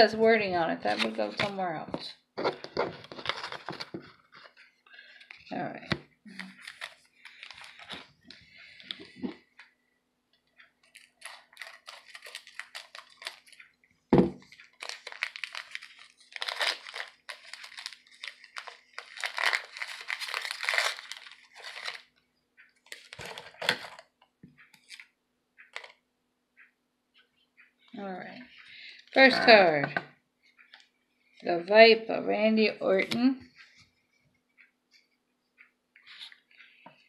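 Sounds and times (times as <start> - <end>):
plastic packaging crinkling: 6.3 - 9.3, 10.8 - 13.7, 14.4 - 22.1, 22.8 - 24.1, 25.7 - 26.0.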